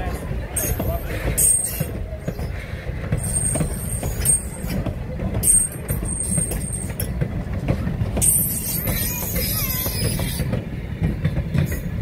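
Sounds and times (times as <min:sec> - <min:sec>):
train wheels rumbling on rails: 0:00.0 - 0:12.0
high wheel squeal: 0:08.2 - 0:10.5.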